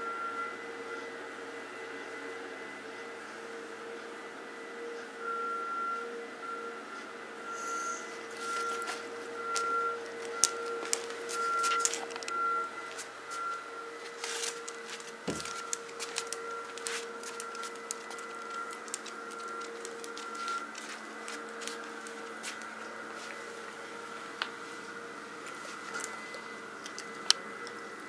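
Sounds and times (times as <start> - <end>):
rustling: 8.3 - 23.6
dog claws clicking on tile floor: 14.4 - 22.7.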